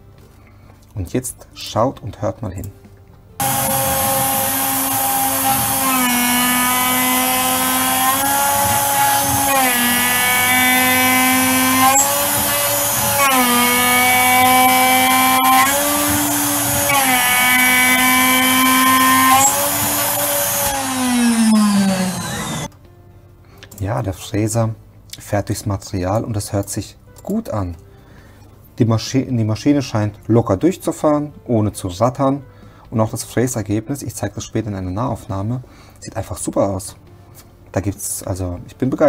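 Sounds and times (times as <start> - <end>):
router spindle whine: 3.4 - 22.7.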